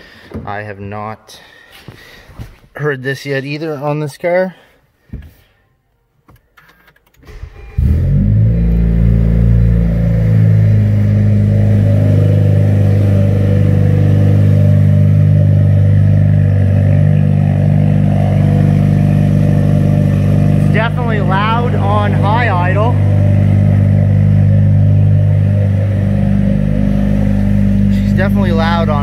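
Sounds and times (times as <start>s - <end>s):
car engine starting and idling: 6.3s - 29.0s.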